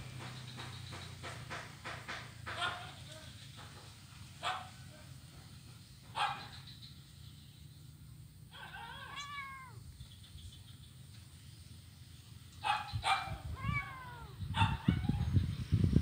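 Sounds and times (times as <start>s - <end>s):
kitten mewing: 8.5s - 9.8s, 13.3s - 15.1s.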